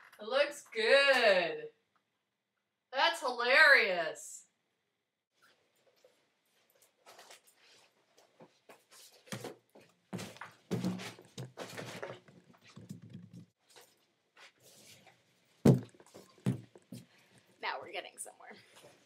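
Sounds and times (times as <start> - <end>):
balloon thumping laptop: 15.6 - 16.8.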